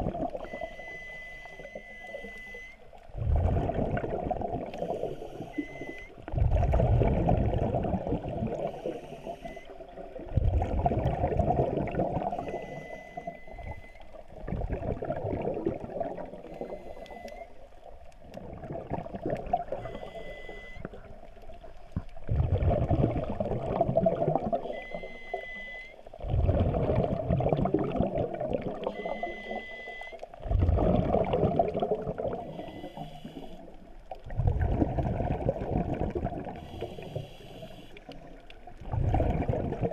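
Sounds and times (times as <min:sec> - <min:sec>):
exhaled bubbles rushing: 0:00.0 - 0:00.7, 0:03.1 - 0:12.7, 0:13.6 - 0:16.7, 0:18.2 - 0:20.0, 0:20.8 - 0:25.0, 0:26.2 - 0:29.6, 0:30.4 - 0:33.0, 0:34.0 - 0:37.1, 0:38.1 - 0:39.9
regulator inhale hiss: 0:04.8 - 0:05.8, 0:08.6 - 0:09.7, 0:32.5 - 0:33.8, 0:36.6 - 0:38.1.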